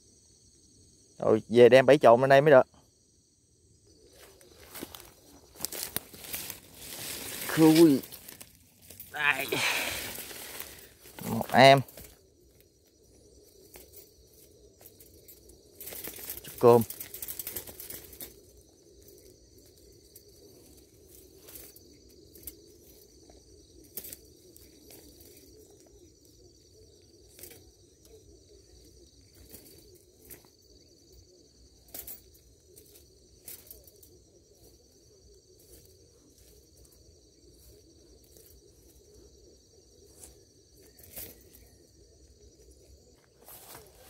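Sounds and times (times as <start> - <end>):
insects trilling: 0.0 - 44.0
wire cage clicking and rustling: 13.4 - 26.4, 27.2 - 30.6, 31.8 - 34.8, 40.2 - 41.8.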